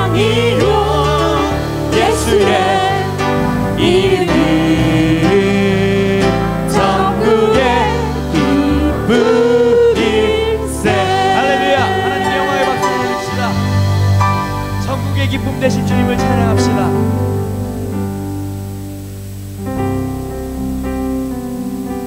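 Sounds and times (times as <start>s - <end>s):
group singing worship song: 0.0s - 14.6s.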